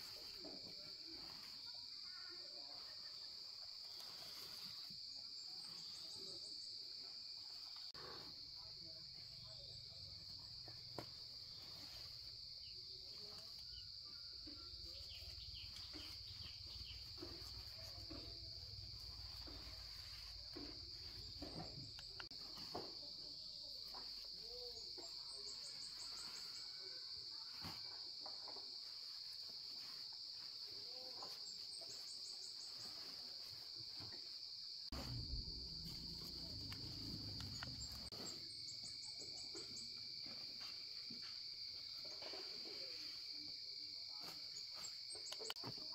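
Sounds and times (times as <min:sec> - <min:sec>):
insect chorus drone: 0:00.0 - 0:45.9.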